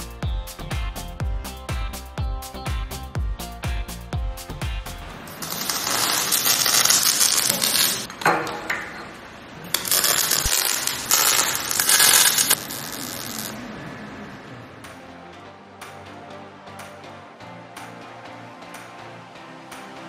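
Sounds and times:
welding arc crackling and spitting: 5.4 - 8.1, 9.6 - 13.6.

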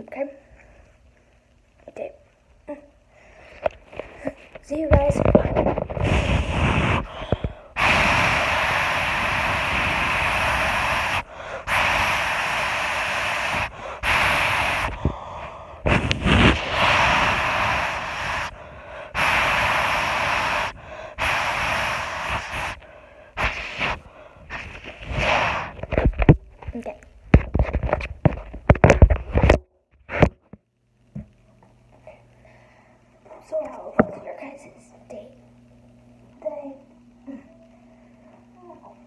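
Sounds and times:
breathy hissing close to microphone: 5.8 - 26.0.

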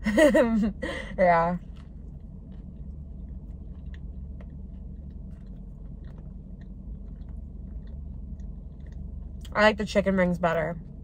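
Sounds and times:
steady low hum: 0.0 - 11.0
person chewing: 1.6 - 9.5.

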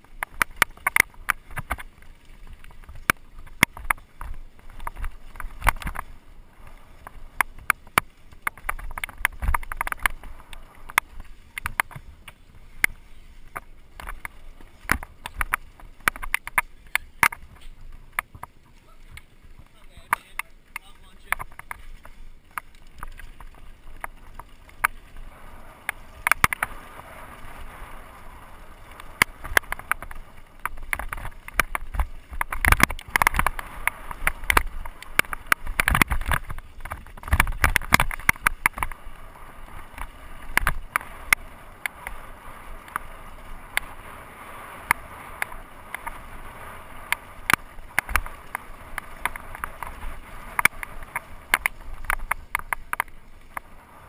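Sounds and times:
bike clattering and knocking: 0.0 - 2.0, 2.6 - 6.1, 7.0 - 25.0, 47.1 - 53.2
tyres crunching on loose stones: 0.0 - 44.0, 44.8 - 53.7.

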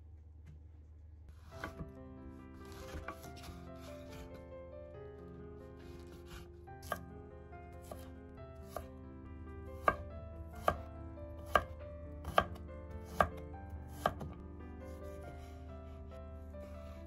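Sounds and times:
knife chopping on wooden board: 1.5 - 1.9, 2.6 - 4.3, 5.8 - 7.0, 7.8 - 8.1, 8.7 - 8.9, 9.8 - 10.0, 10.6 - 14.4.

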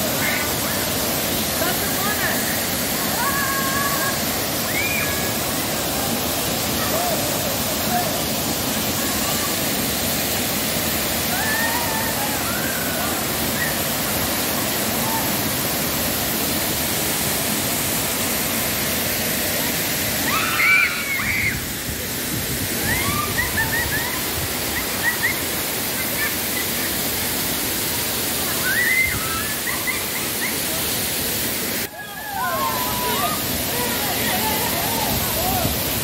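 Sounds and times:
waterfall pouring into pool: 0.0 - 36.0
people calling out: 31.9 - 35.9.

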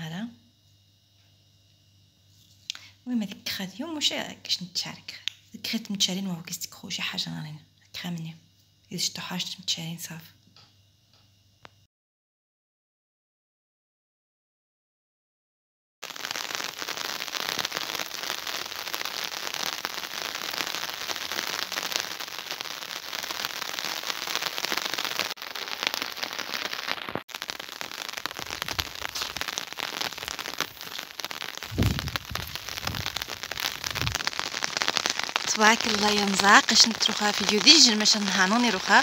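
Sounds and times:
steady rain pattering: 16.0 - 39.0.

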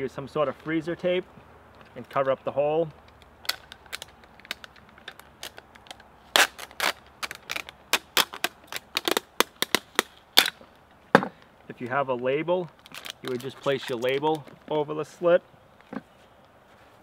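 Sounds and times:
tape tearing off roll: 3.4 - 10.6, 12.7 - 14.4.

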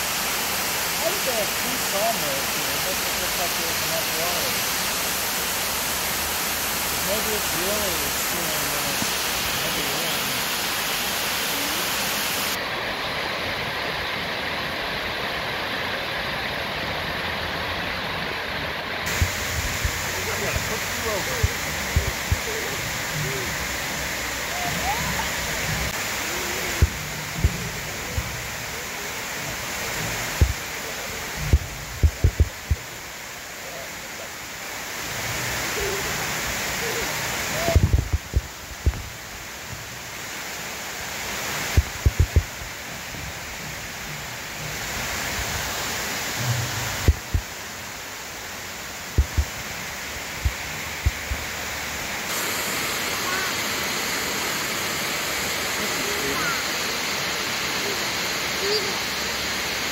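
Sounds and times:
waterfall rushing: 0.0 - 59.9
short low thumps: 31.4 - 32.8, 41.8 - 44.8, 46.4 - 47.5, 49.2 - 49.6.

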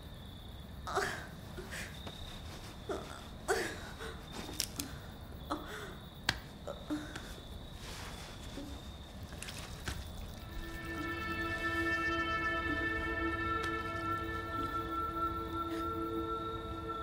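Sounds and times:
woman groaning and gasping: 0.9 - 1.7
faint high whine: 9.6 - 17.0
music: 10.4 - 17.0.

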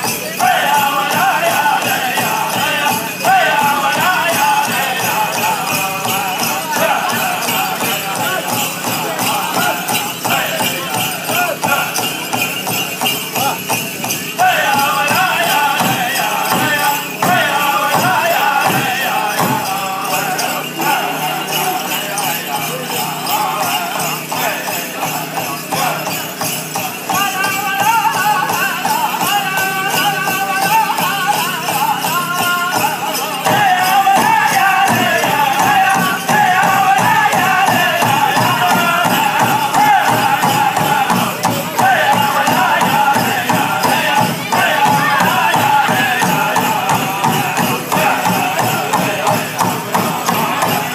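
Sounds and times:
dancers' bells jingling: 0.0 - 50.9
drum group singing: 0.0 - 50.9
steady unison drumbeat: 0.0 - 50.9
large drum beating: 32.8 - 50.9.

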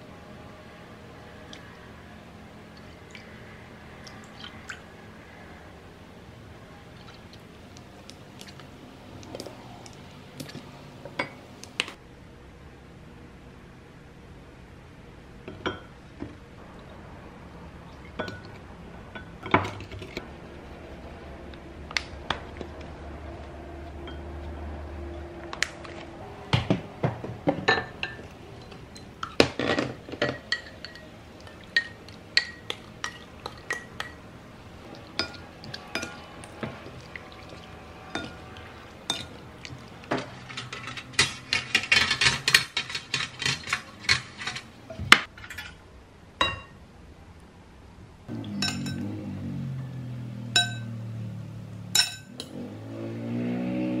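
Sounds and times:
dishes and utensils clinking: 9.3 - 12.0, 15.5 - 16.0, 18.0 - 20.2, 26.5 - 45.8, 48.4 - 49.2, 50.5 - 51.0, 52.0 - 52.6.

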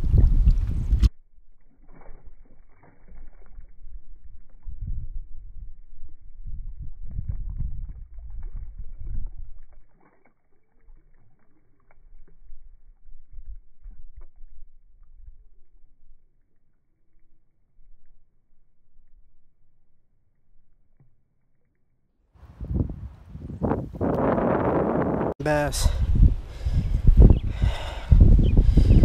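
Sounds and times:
muffled sloshing creek water: 1.4 - 19.5.

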